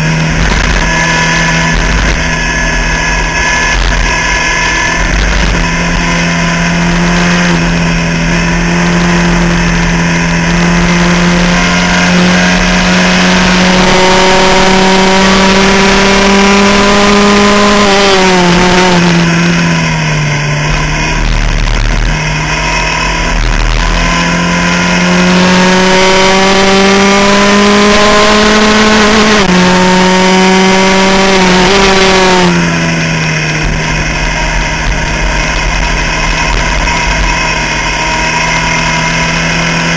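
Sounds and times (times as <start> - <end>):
race car engine revving: 0.0 - 39.9.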